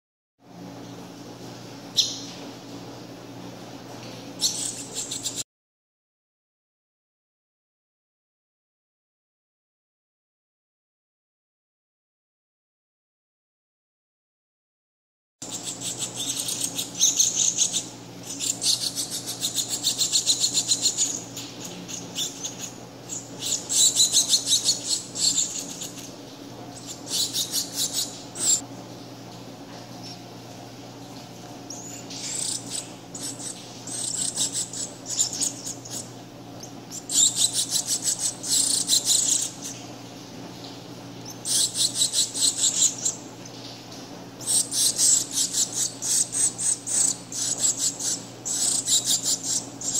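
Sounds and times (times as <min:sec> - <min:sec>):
nestling begging chirps: 0:01.9 - 0:02.4, 0:04.4 - 0:05.4, 0:15.4 - 0:28.6, 0:31.6 - 0:40.0, 0:40.6 - 0:43.8, 0:44.4 - 0:49.9.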